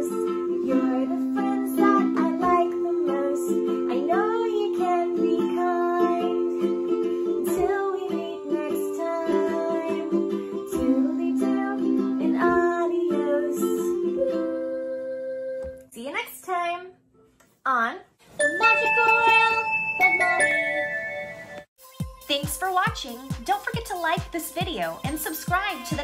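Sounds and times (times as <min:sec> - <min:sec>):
ukulele strumming: 0:00.0 - 0:14.8, 0:18.4 - 0:19.7
person singing: 0:00.0 - 0:15.8.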